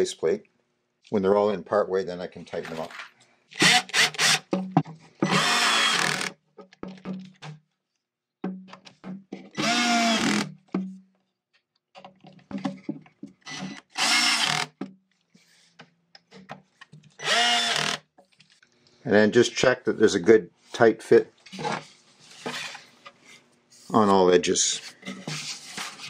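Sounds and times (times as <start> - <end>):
cordless drill driving screws: 3.6 - 4.5, 5.2 - 6.4, 9.6 - 10.5, 13.4 - 14.8, 17.2 - 18.0.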